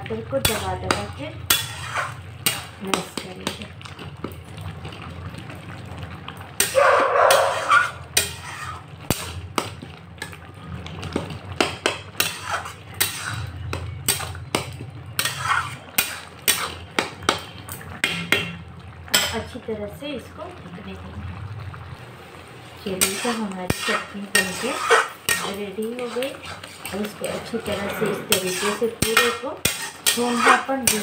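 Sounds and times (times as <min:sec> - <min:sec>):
spatula mashing food in pan: 0:00.0 - 0:05.0, 0:06.6 - 0:19.4, 0:22.9 - 0:31.0
spatula knocking metal pan: 0:00.4 - 0:03.6, 0:06.6 - 0:08.4, 0:09.1 - 0:09.8, 0:11.6 - 0:19.4, 0:28.3 - 0:31.0.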